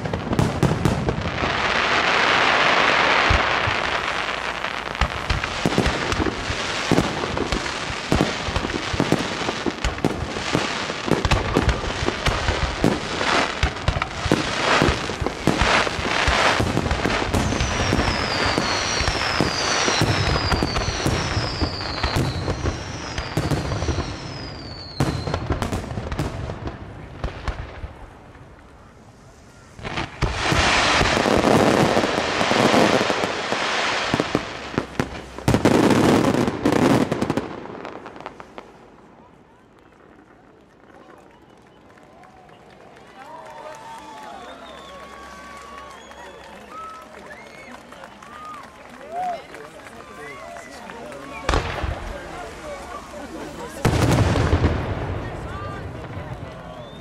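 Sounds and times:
firework crackling: 0.0 - 57.0
falling firework whistles: 14.0 - 25.8, 43.8 - 47.8, 55.5 - 57.0.

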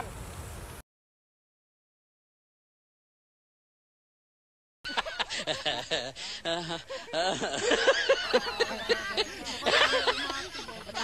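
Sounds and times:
people laughing: 4.9 - 11.0
people talking: 5.0 - 11.0.

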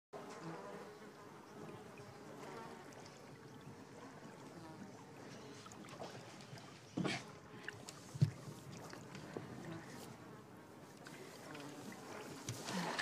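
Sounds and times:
low buzzing hum: 0.2 - 13.0
soft watery wash: 0.2 - 13.0.

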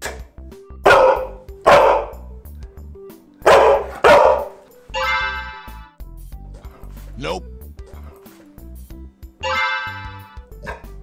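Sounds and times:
dog barking: 0.0 - 2.3, 3.4 - 5.4, 10.6 - 11.0
light background music: 0.0 - 11.0.

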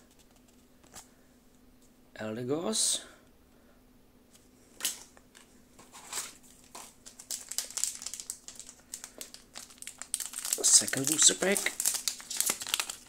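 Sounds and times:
foil wrapper crinkling: 6.1 - 13.0.

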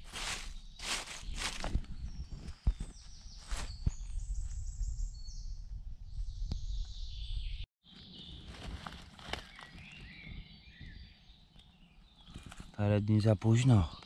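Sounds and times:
footsteps through leaf litter: 0.0 - 1.8, 8.0 - 10.1
birds singing: 0.1 - 14.0.

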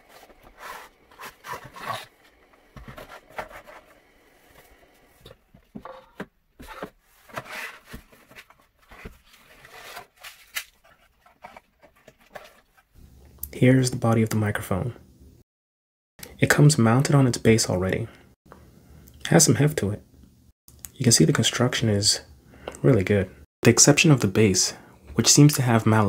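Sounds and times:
cardboard packaging scraping: 0.0 - 4.7, 5.6 - 12.9.

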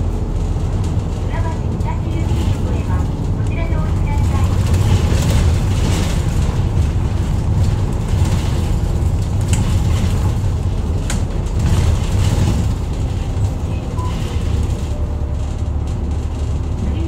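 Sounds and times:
bus engine and road rumble: 0.0 - 17.0.

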